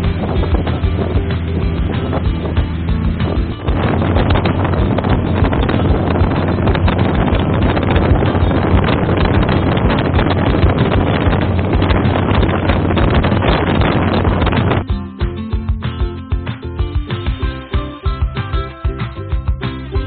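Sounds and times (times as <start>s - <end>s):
boat engine droning: 0.0s - 15.7s
wind buffeting microphone: 0.0s - 16.1s.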